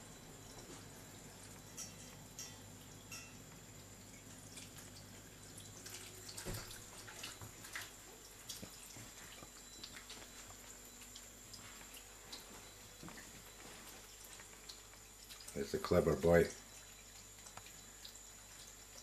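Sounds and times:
water drips and splashes: 0.5s - 19.0s
tap water running into sink: 4.1s - 9.0s.

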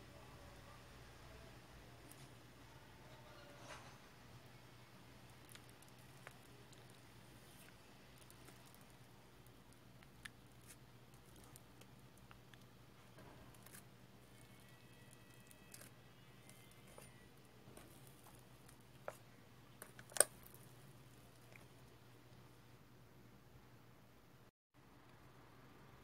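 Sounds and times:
slime crackling and popping: 5.3s - 12.7s, 13.5s - 17.2s.

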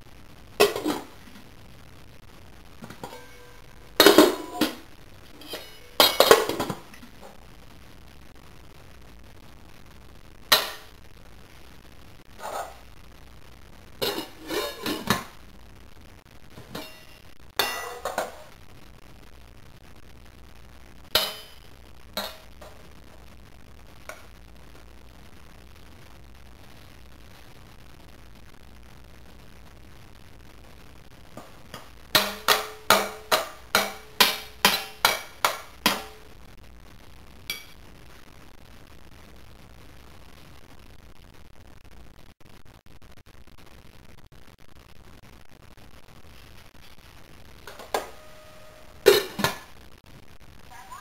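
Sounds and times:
metal pots and pans clanging: 0.6s - 1.1s, 2.8s - 4.8s, 5.4s - 7.0s, 14.0s - 15.3s, 16.6s - 18.5s, 21.2s - 21.6s, 22.2s - 22.4s, 31.7s - 36.2s, 49.1s - 49.6s.

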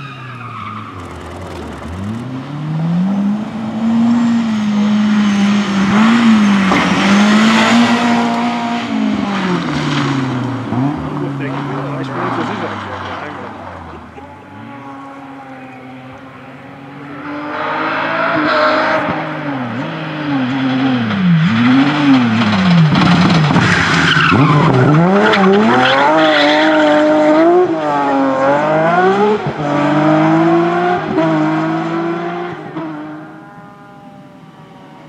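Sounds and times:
rally car engine revving: 0.0s - 35.0s.

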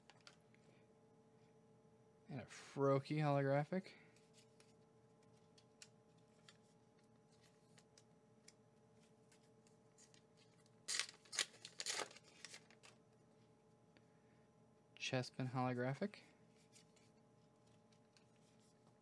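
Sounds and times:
cards being handled: 4.1s - 13.0s, 16.5s - 19.0s
wrapper tearing: 10.0s - 13.0s.

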